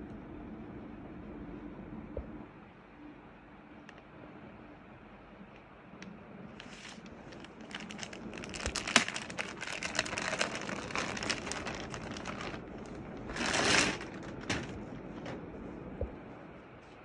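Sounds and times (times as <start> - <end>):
plastic packaging crinkling: 6.6 - 15.4.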